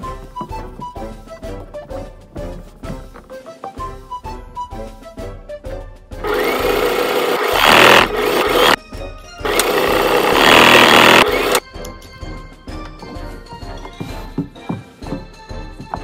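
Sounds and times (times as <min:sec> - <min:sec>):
electric sewing machine stitching: 0:06.2 - 0:08.8, 0:09.4 - 0:11.6.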